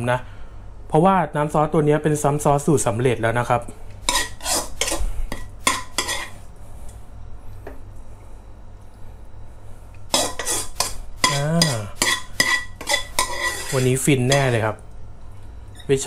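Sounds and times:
metal ladle scraping a wok: 4.0s - 6.4s, 10.1s - 14.5s.

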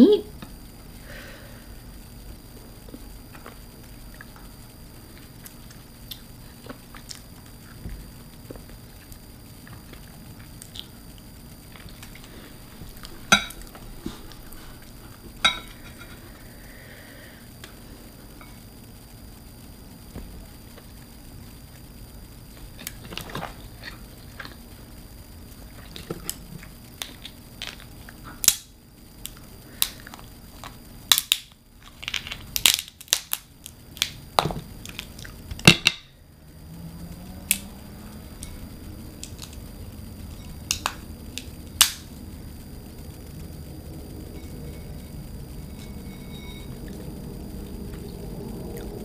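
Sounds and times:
crab shell cracking: 27.0s - 36.0s, 40.6s - 42.1s.

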